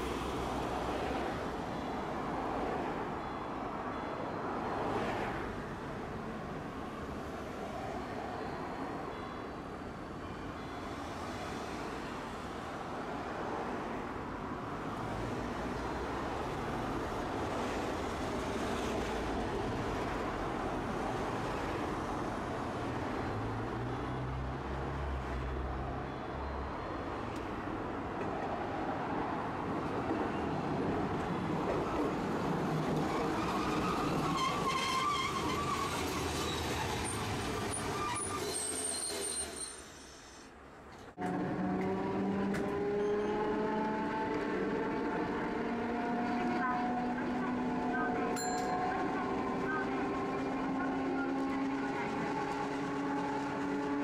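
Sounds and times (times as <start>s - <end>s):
streetcar pulling in: 0.0s - 40.4s, 41.0s - 54.0s
road traffic passing: 0.0s - 54.0s
wheels and brakes squealing: 32.6s - 40.5s, 42.8s - 43.7s.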